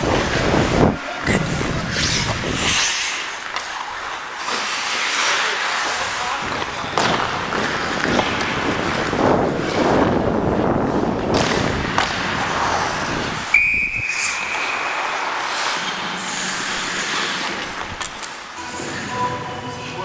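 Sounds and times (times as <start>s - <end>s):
wind rumbling on microphone: 0.0s - 2.8s, 6.4s - 14.0s
skate blades on ice: 0.0s - 20.0s
referee's whistle: 13.5s - 14.9s.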